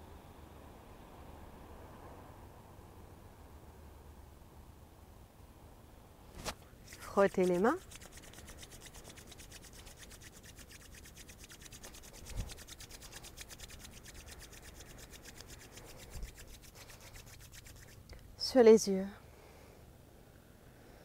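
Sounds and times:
palms rubbing together: 6.4 - 18.2.

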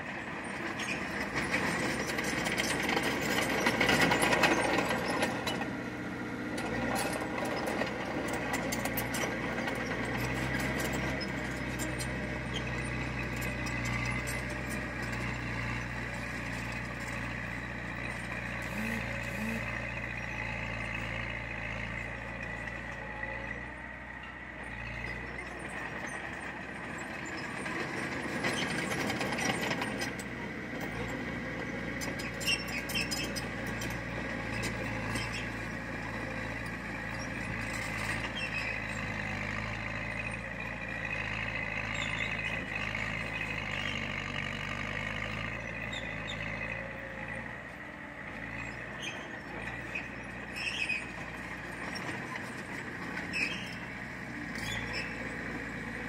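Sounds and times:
diesel machinery engine running: 0.0 - 56.0.

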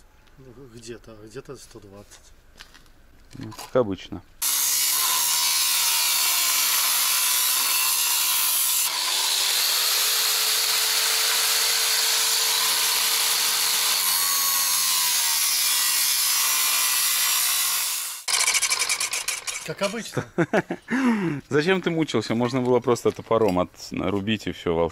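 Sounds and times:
angle grinder cutting steel: 4.4 - 20.0.

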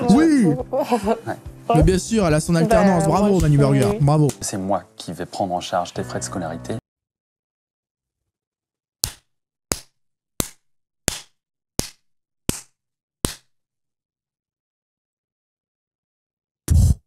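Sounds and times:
man clapping hands slowly: 3.3 - 4.4, 9.0 - 13.5.

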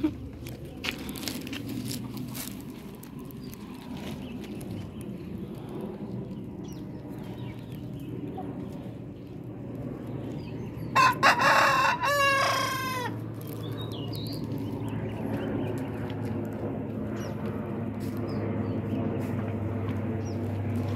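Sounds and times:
steady low hum: 0.0 - 20.9
rooster crowing: 11.0 - 13.2.

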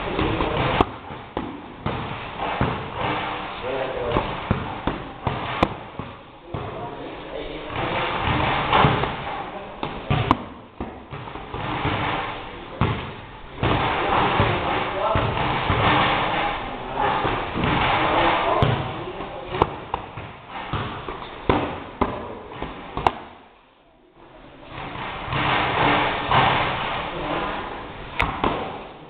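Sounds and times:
boxing gloves punching: 7.8 - 16.4, 24.8 - 26.8.

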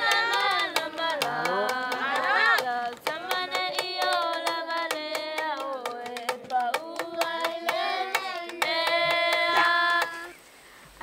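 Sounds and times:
children singing: 0.0 - 4.6, 6.4 - 10.4
fast hand claps: 0.0 - 10.4.

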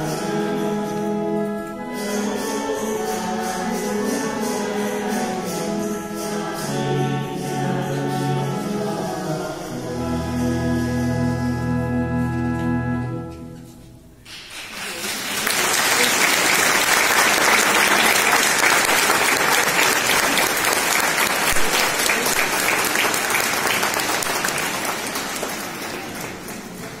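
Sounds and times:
congregation applauding: 14.2 - 27.0.

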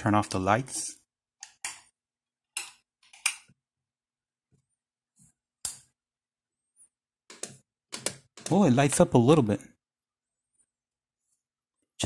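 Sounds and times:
sharp clicks and knocks: 7.3 - 9.0.

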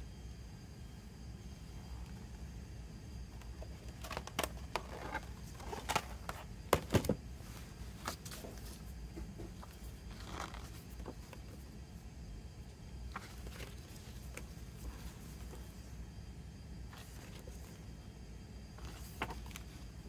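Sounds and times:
low steady hum: 0.0 - 20.0
glossy paper rustling: 13.1 - 16.0, 16.9 - 17.9, 18.8 - 20.0.

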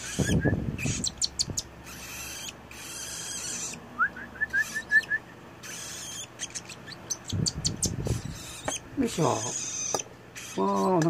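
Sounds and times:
chick high squeaks: 5.6 - 11.0.

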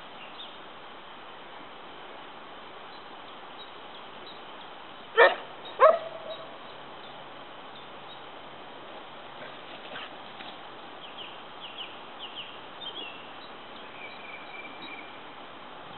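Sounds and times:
small dog barking: 5.2 - 6.5.

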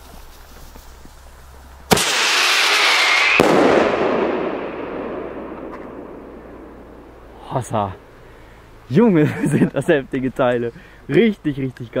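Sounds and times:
firework launch bang: 1.9 - 7.4
heavy firework report echoing: 1.9 - 7.4
rattling whistle of firework shell: 2.0 - 6.9.

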